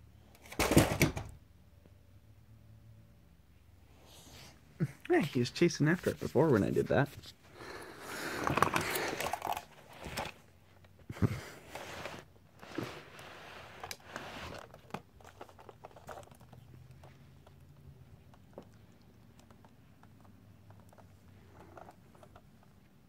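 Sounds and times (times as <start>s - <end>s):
kittens scuffling on carpet: 5.2s - 8.8s.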